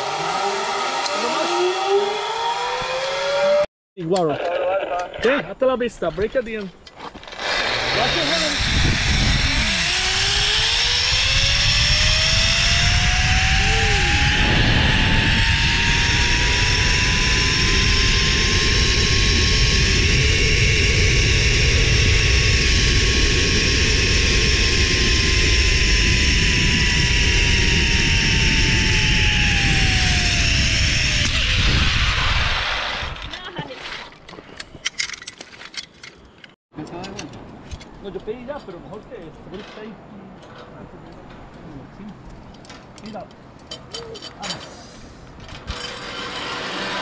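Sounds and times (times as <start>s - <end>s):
pulley wheels whining on cable: 0.0s - 3.6s, 7.1s - 36.6s, 45.5s - 47.0s
wind noise on microphone: 7.4s - 33.7s.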